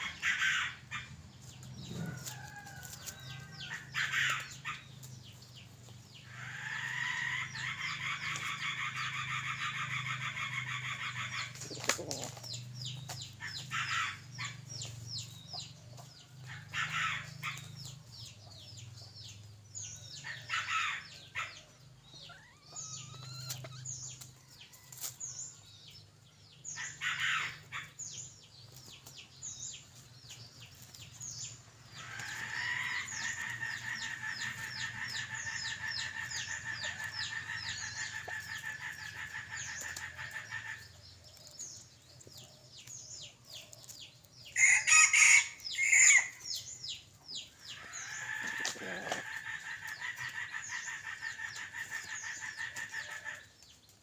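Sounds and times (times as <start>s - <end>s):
pecking in dry leaves: 0.0s - 54.0s
small birds chirping: 0.0s - 54.0s
rooster clucking: 6.3s - 14.3s, 47.7s - 53.5s.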